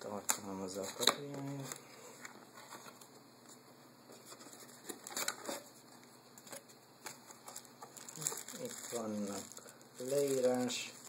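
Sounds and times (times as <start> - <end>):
rustling of cardboard box and plastic: 4.1 - 11.0.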